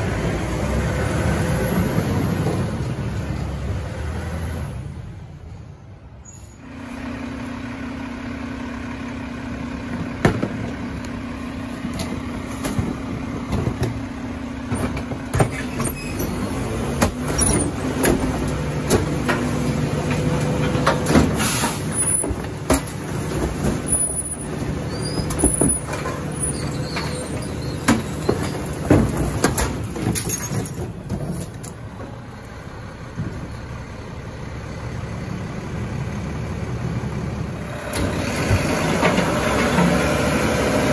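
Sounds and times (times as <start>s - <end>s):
garbage truck mechanical hum: 0.0s - 40.9s
clanks and bangs: 14.7s - 32.1s
high squeals: 15.5s - 16.6s, 23.8s - 28.8s.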